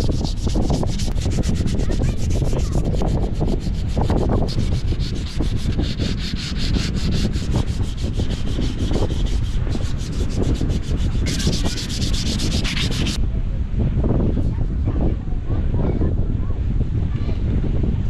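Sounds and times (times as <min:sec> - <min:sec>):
hand sanding wood: 0:00.0 - 0:13.2.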